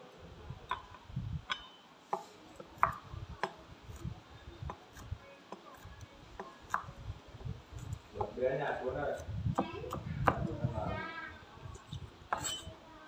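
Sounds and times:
cleaver chopping on wooden board: 2.2 - 3.6.

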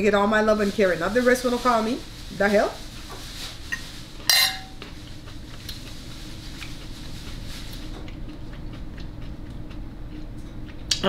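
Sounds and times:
low steady hum: 0.0 - 11.0
chewing salad: 2.8 - 11.0
fork clinking on plate: 4.3 - 4.8.

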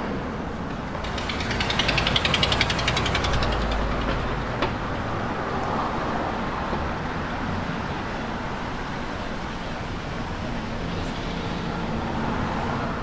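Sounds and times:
rapid even ticking: 1.0 - 4.4
car driving past: 1.0 - 4.9.

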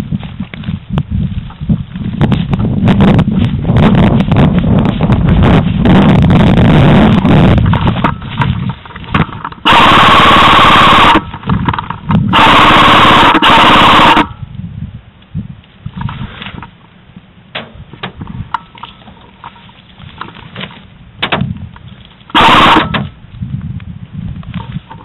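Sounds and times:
airsoft gun full-auto bursts: 9.7 - 11.2, 12.4 - 14.3.

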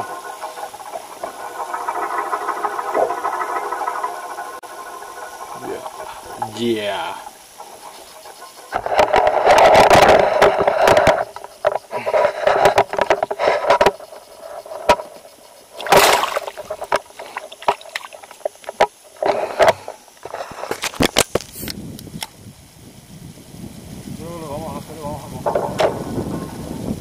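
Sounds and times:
water splashing and sloshing: 0.0 - 21.3.

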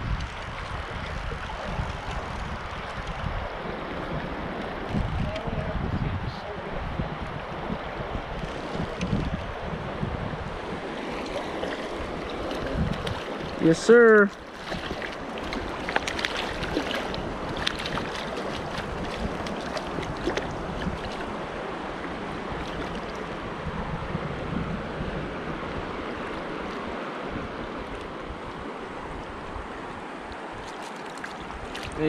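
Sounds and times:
creek water rushing: 0.0 - 32.0
wind buffeting microphone: 0.0 - 32.0
fish splashing at surface: 14.3 - 21.3.

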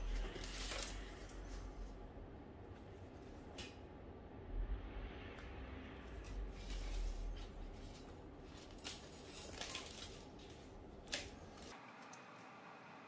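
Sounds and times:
wire and metal clicks and scrapes: 0.0 - 1.8, 6.2 - 12.2
low rumble: 4.0 - 8.7.

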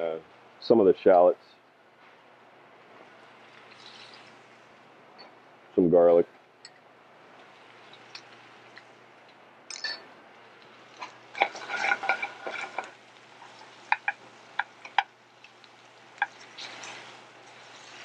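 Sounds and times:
metal tongs clinking in pan: 9.7 - 10.0, 11.0 - 17.0
scraping in pan: 10.7 - 18.0.

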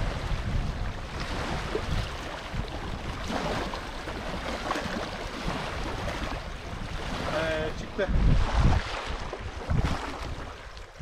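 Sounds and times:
faint water lapping: 0.0 - 11.0
wind buffeting microphone: 0.0 - 11.0.

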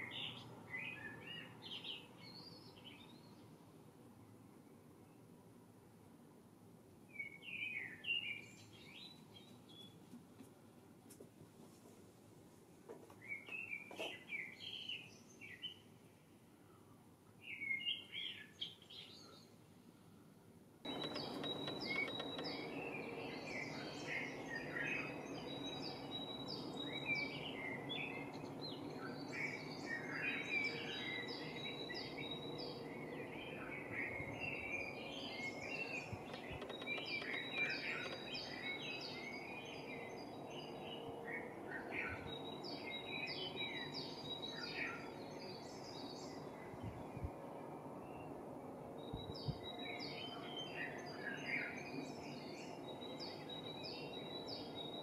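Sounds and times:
songbirds chirping and trilling: 0.0 - 3.7, 7.1 - 10.0, 13.2 - 16.2, 16.8 - 19.8, 20.9 - 55.0
low background hum: 19.8 - 55.0.

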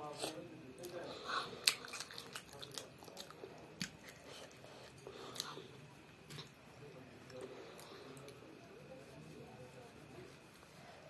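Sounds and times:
child chewing food: 0.0 - 8.5.

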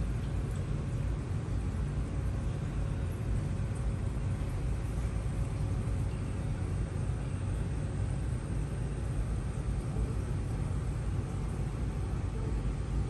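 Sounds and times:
aquarium pumps rumbling: 0.0 - 13.0
faint steady hum: 0.0 - 13.0.

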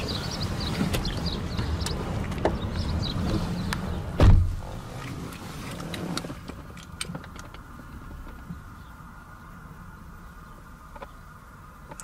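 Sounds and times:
muffled outside noise: 0.0 - 12.0
car door thud: 4.2 - 4.7.

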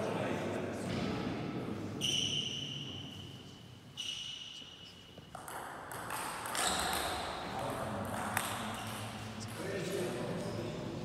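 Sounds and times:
ping pong ball knocking: 5.4 - 7.3.

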